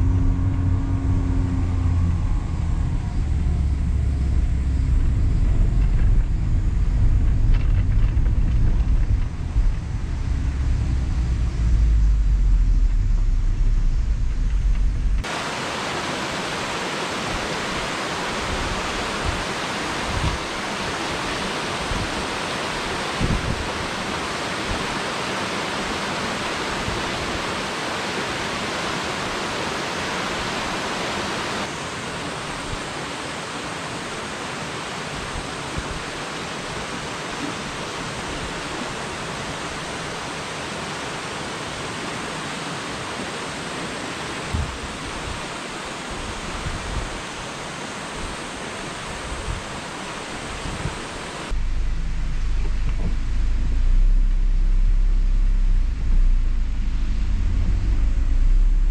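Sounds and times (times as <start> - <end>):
low car rumble: 0.0 - 15.3, 51.5 - 58.9
stream water rushing: 15.2 - 51.6.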